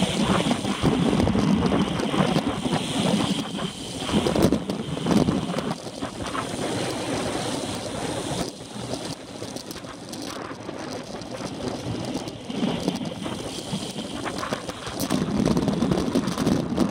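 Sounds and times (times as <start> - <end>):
wind rushing over microphone: 0.0 - 16.9.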